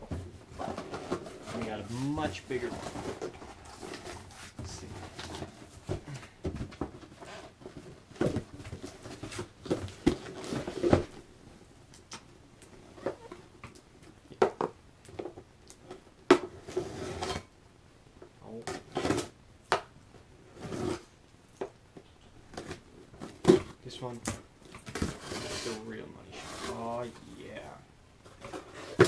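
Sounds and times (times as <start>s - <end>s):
scrapes and knocks: 0.0s - 11.2s.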